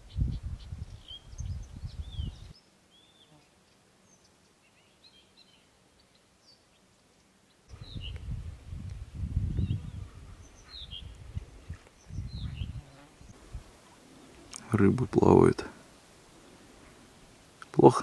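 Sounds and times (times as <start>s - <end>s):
wind buffeting microphone: 0.0s - 2.5s, 7.7s - 13.8s
birds chirping: 0.0s - 8.4s, 9.4s - 18.0s.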